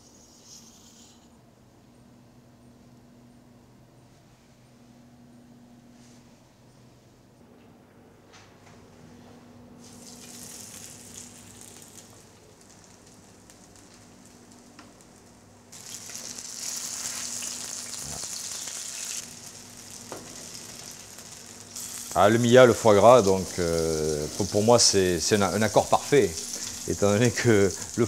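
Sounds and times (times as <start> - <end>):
slices sizzling in frying pan: 9.8 - 28.0.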